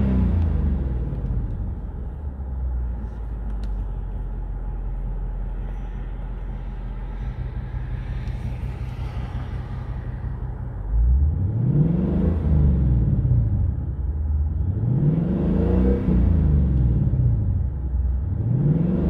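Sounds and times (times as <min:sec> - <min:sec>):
car engine idling: 0:00.0 - 0:11.9
engine revving: 0:07.1 - 0:13.6, 0:14.6 - 0:17.5, 0:18.3 - 0:19.0.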